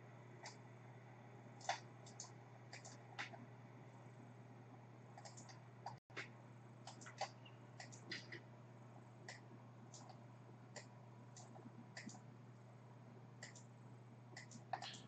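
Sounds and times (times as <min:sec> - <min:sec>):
low steady hum: 0:00.0 - 0:15.0
mouse and keyboard clicks: 0:01.6 - 0:03.4, 0:05.2 - 0:08.4, 0:09.3 - 0:10.2, 0:10.8 - 0:12.2, 0:13.4 - 0:13.7, 0:14.4 - 0:15.0.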